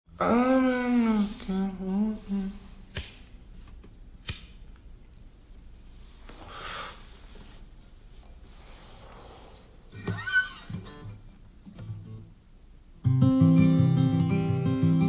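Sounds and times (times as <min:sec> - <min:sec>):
soft rush of noise: 0:04.9 - 0:13.0.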